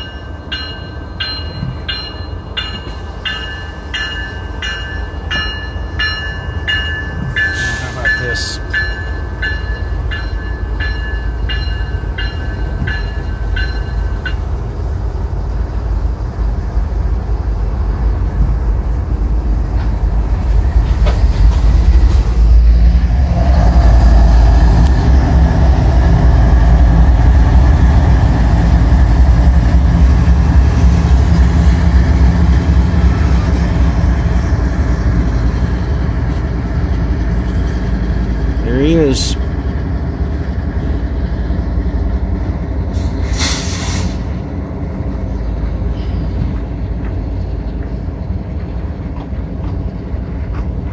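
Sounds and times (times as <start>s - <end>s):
crossing signal bell ringing: 0.0s - 14.5s
freight train rumbling past: 0.0s - 50.9s.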